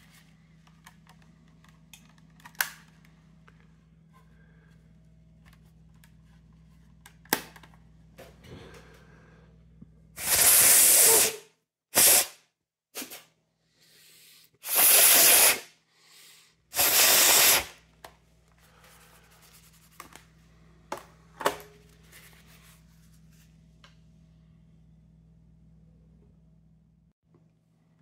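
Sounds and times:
hissing bursts of air: 10.2s - 11.4s, 12.0s - 12.4s, 14.2s - 17.8s.

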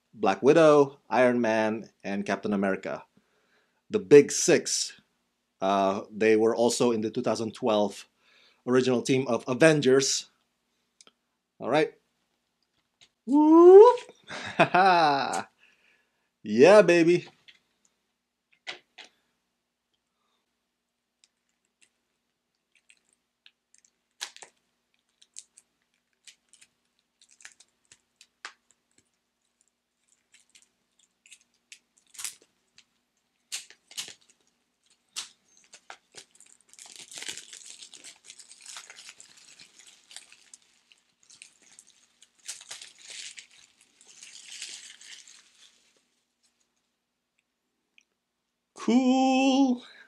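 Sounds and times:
plastic shrink-wrap crinkling and tearing: 21.2s - 46.7s.

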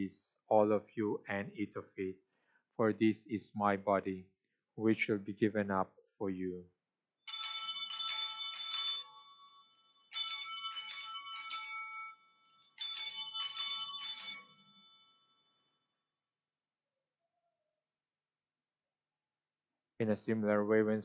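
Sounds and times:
altar bells ringing: 7.3s - 15.7s.

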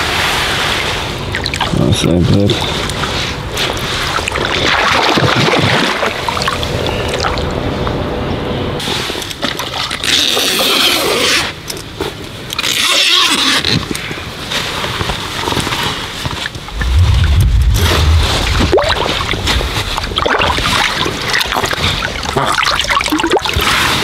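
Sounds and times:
water splashing and trickling: 0.7s - 7.6s, 16.5s - 24.0s.

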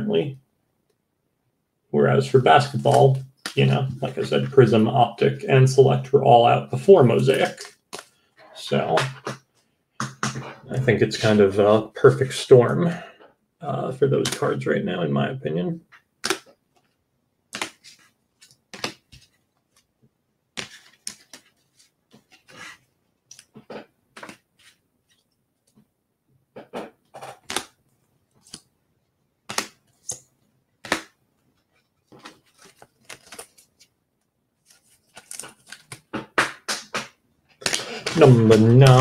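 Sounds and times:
cards being handled: 7.1s - 8.2s, 15.9s - 16.9s, 17.5s - 19.9s, 20.6s - 25.3s, 27.3s - 28.7s, 29.4s - 33.9s, 34.6s - 39.0s.

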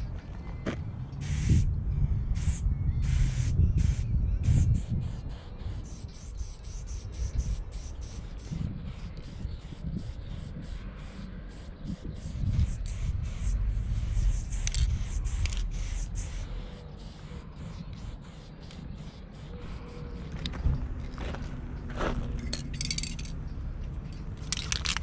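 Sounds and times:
spray paint can hissing: 1.2s - 1.7s, 2.4s - 20.4s.

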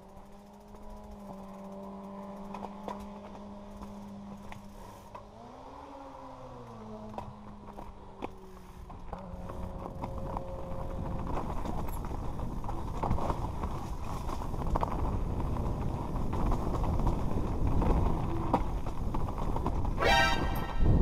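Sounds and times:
bike rattling over bumps: 0.0s - 21.0s
tyres crunching over stones: 6.6s - 20.0s
wind rumble on microphone: 8.8s - 21.0s.

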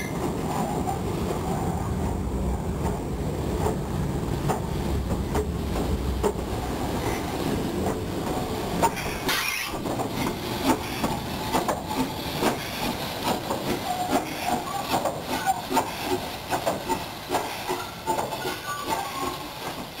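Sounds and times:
steam hissing from locomotive: 6.7s - 20.0s.

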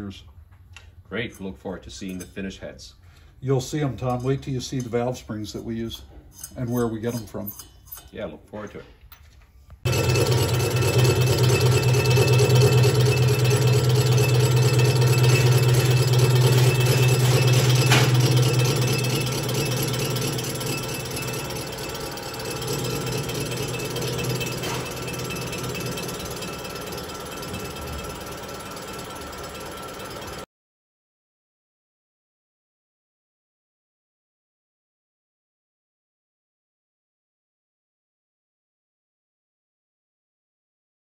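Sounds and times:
lathe humming with high whine: 9.9s - 30.4s.

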